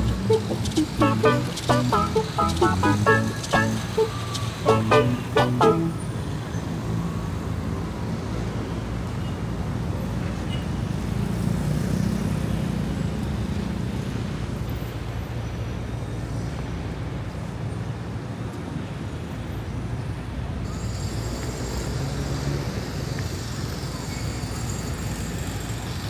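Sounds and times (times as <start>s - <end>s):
car and motorcycle engines: 0.0s - 6.2s, 11.0s - 14.5s.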